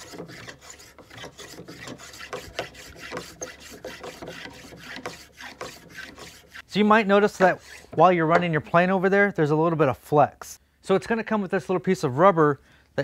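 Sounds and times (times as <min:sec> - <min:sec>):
plane cutting wood: 0:00.0 - 0:08.1.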